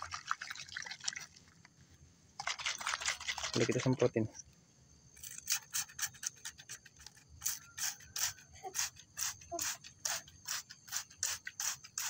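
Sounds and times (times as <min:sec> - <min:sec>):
spray bottle misting hiss: 0:07.4 - 0:12.0.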